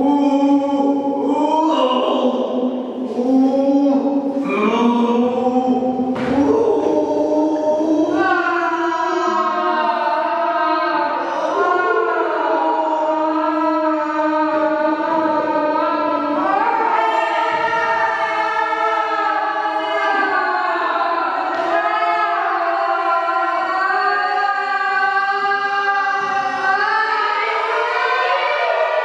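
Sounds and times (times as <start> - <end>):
slow vocal music: 0.0 - 29.0.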